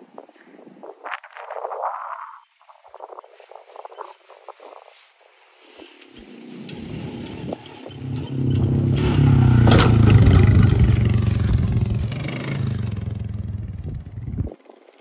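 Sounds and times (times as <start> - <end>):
four-wheeler engine driving past: 6.2 - 15.0
sharp clatter: 6.7 - 12.3.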